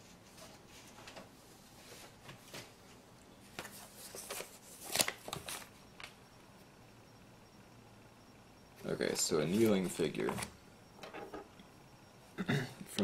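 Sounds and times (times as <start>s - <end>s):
paper rustling and crinkling: 3.6s - 5.7s.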